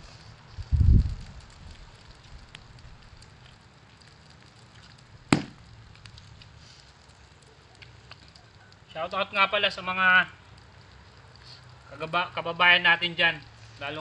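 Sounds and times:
sharp knock: 0:05.3 - 0:05.6.

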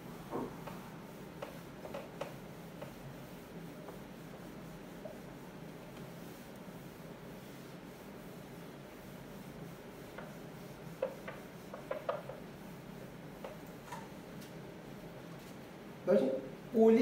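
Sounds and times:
short taps and scrapes: 0:01.4 - 0:03.0, 0:10.1 - 0:12.4, 0:13.4 - 0:14.1.

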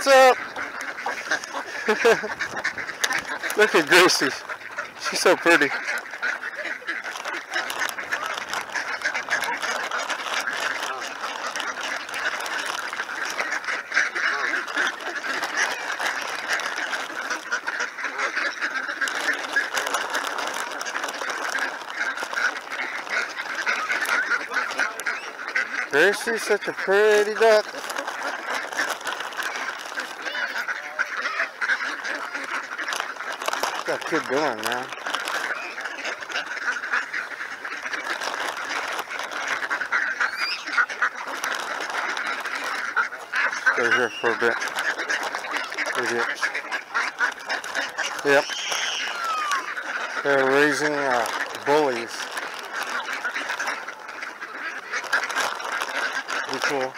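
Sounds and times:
ducks quacking: 0:00.0 - 0:56.9.

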